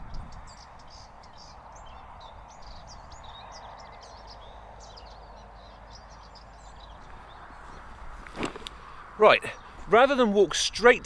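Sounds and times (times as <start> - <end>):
small birds singing and chirping: 0.0 - 11.0.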